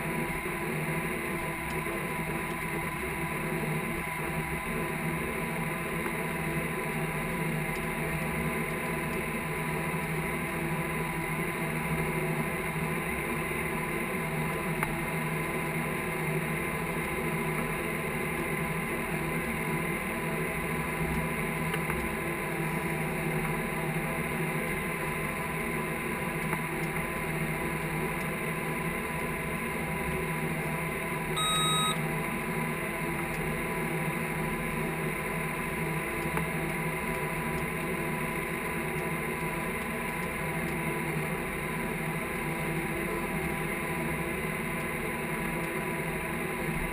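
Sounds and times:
steady high whine: 0.0s - 46.9s
short electronic beep: 31.4s - 32.0s.

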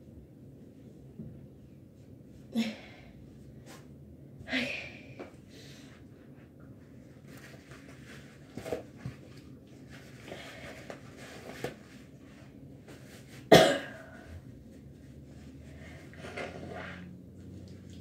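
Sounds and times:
girl coughing: 13.5s - 14.1s.

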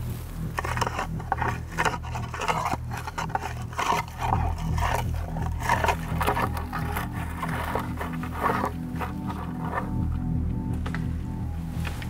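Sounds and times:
brush cracking: 0.0s - 12.0s
scapula scraping spruce branches: 0.0s - 12.0s.

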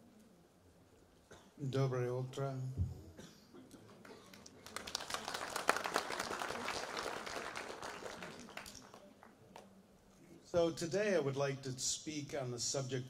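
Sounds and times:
audience applauding: 4.0s - 9.6s.

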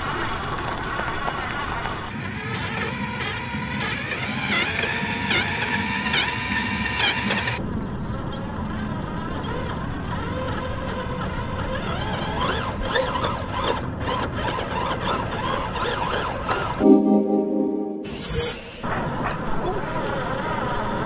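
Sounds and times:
toy truck electric motor whining: 1.3s - 7.6s, 10.3s - 16.6s.

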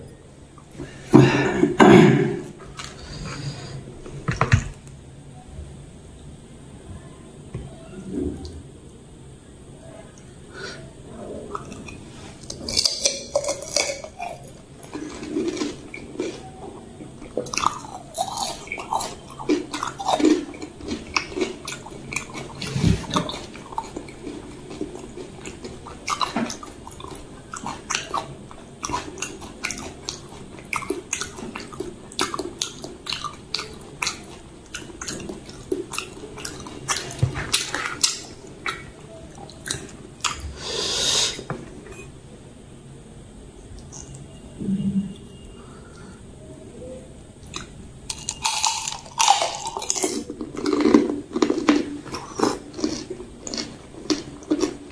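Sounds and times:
mouth chewing: 11.5s - 40.6s, 47.4s - 54.9s
crisp shells crunching: 48.1s - 54.9s.

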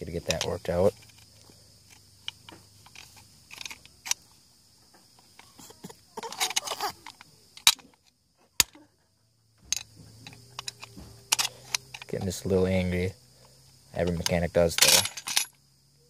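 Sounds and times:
toddler grunting: 5.6s - 7.1s.

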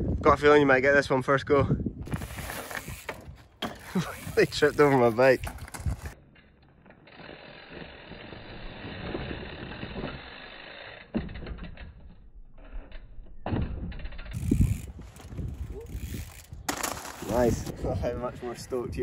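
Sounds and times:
motorbike tyres on gravel: 2.1s - 6.2s, 7.2s - 10.6s, 14.4s - 18.2s.

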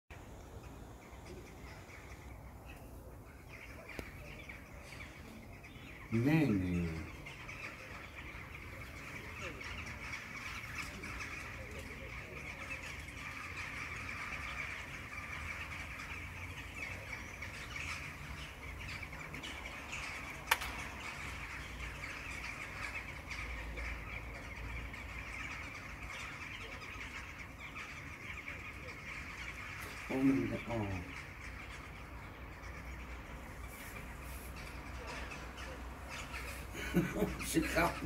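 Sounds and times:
flock of crows calling: 0.1s - 38.0s
sharp click: 20.5s - 20.8s.

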